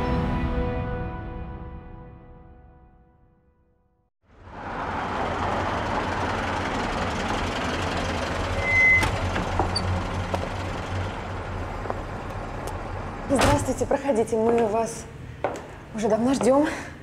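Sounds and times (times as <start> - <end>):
traffic noise with low hum: 4.3 - 17.0.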